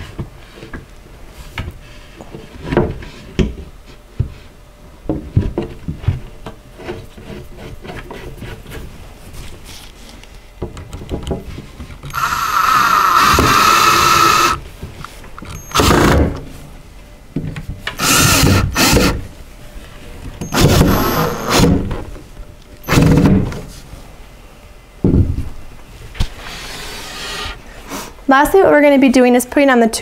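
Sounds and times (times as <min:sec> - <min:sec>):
cordless drill whining: 0:12.1 - 0:14.6, 0:15.6 - 0:16.2, 0:18.0 - 0:19.2, 0:20.4 - 0:21.8.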